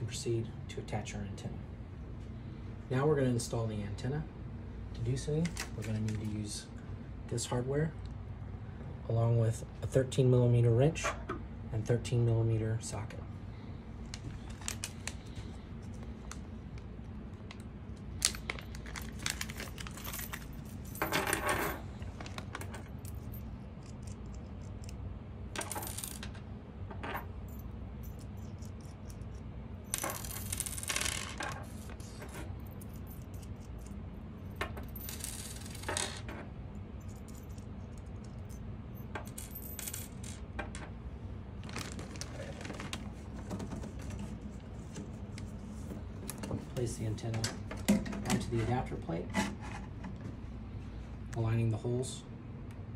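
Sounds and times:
plastic wrapping rustling: 18.1s - 20.6s, 41.6s - 45.0s
metal nuts and bolts clinking: 29.9s - 36.4s.

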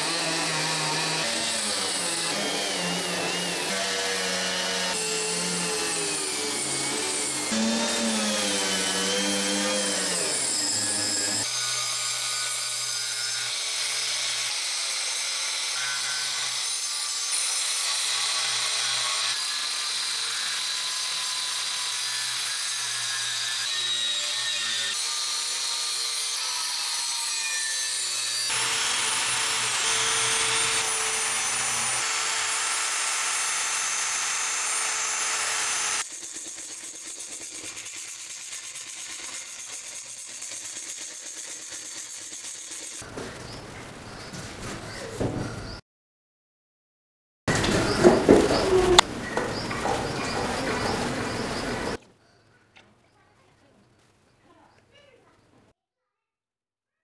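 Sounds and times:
grinder grinding steel: 0.0s - 43.1s, 47.5s - 52.0s
hand sanding with sandpaper: 36.0s - 43.0s.

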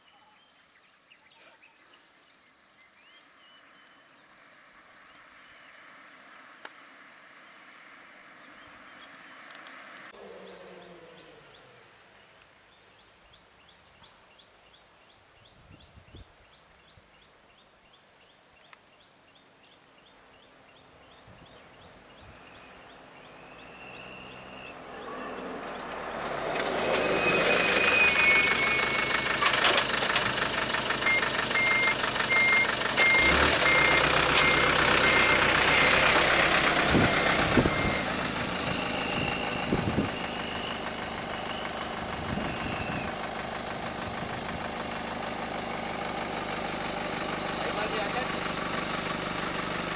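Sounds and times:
vehicle engine running: 21.7s - 49.9s
short beeps: 31.1s - 36.0s.

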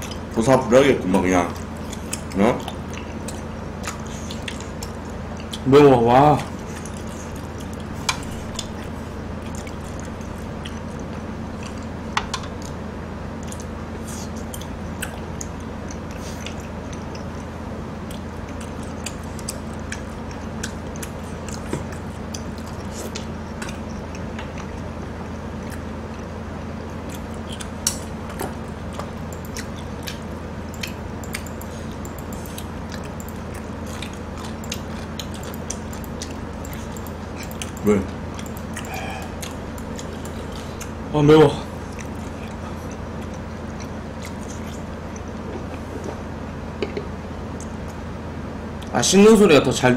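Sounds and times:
steady low hum: 0.0s - 49.9s
quiet chewing: 1.4s - 5.8s, 6.4s - 46.6s, 47.5s - 48.1s
chopsticks clicking against dishes: 27.1s - 40.9s.

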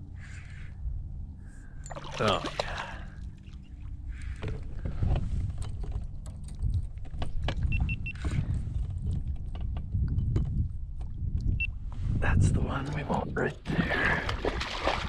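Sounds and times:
fish splashing: 1.9s - 3.2s, 13.9s - 15.0s
clicks and knocks on hull: 4.4s - 11.5s.

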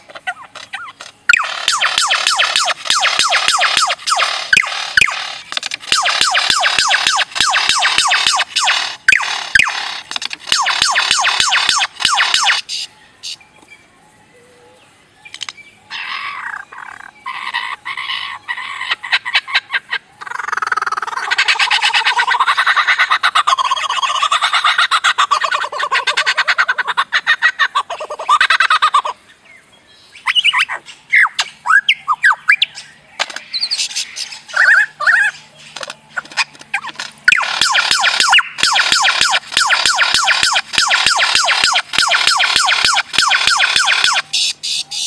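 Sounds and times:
lyrebird singing clicks and whistles: 0.0s - 13.8s, 15.2s - 17.7s, 30.2s - 45.0s.

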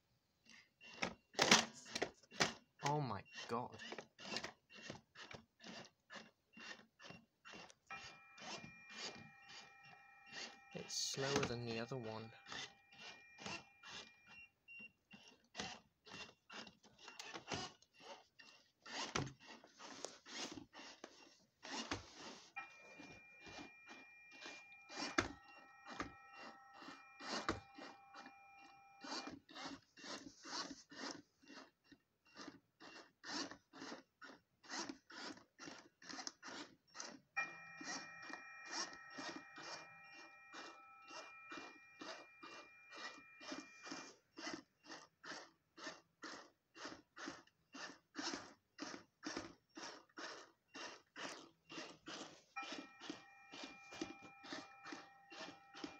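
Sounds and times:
long steady electronic tones: 7.9s - 14.4s, 22.6s - 29.4s, 37.4s - 44.2s, 52.6s - 55.9s.

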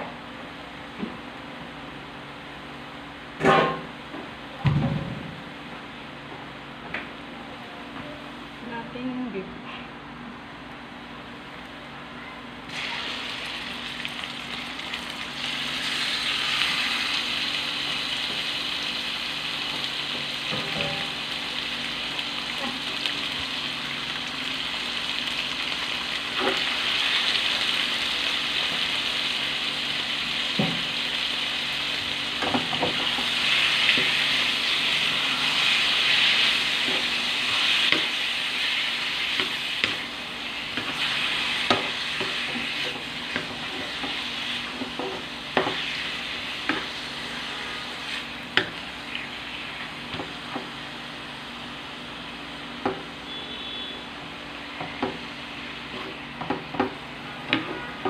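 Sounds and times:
pork sizzling in a wok: 12.7s - 58.0s.

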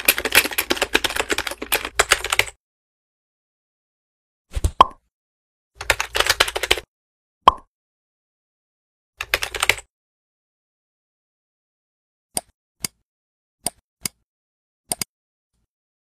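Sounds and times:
typing on computer keyboard: 0.0s - 2.6s, 5.8s - 6.9s, 9.2s - 9.9s
computer mouse clicks: 12.3s - 13.0s, 13.6s - 14.2s, 14.9s - 15.1s.

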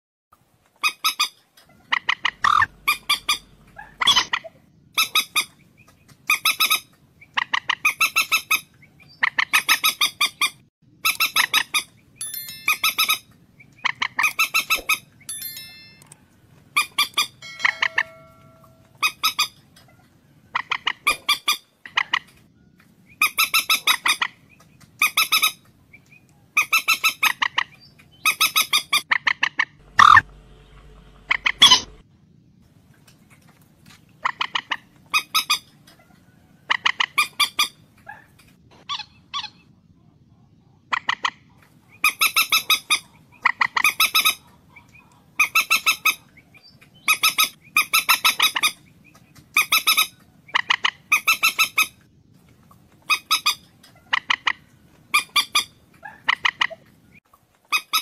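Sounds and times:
moorhen clicking calls: 0.8s - 11.9s, 12.7s - 15.3s, 23.2s - 30.3s, 53.0s - 56.9s.

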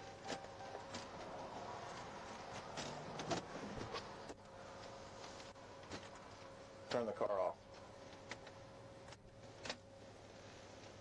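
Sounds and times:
vehicle noise with hum: 0.0s - 6.3s.

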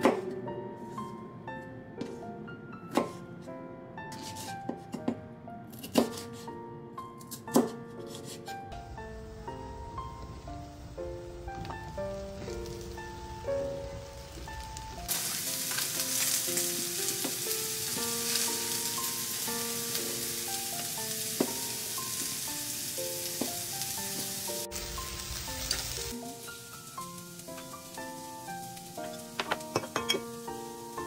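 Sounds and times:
light melodic background music: 0.0s - 31.0s
vegetables sizzling in oil: 8.8s - 31.0s.

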